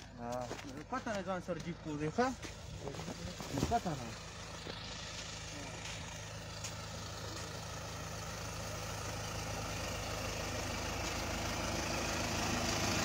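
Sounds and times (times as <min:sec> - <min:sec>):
minibus engine idling: 0:00.0 - 0:13.0.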